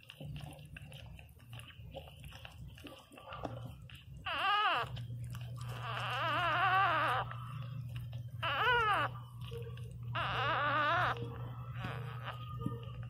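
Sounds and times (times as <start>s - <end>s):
steady low hum: 0.0s - 13.0s
puppy whining squeals: 3.9s - 13.0s.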